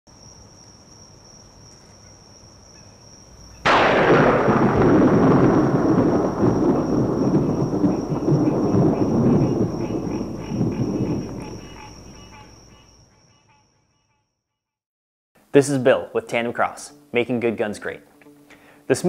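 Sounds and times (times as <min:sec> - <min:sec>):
rolling thunder rumble: 0:03.6 - 0:12.6
thunder crack: 0:03.6 - 0:12.6.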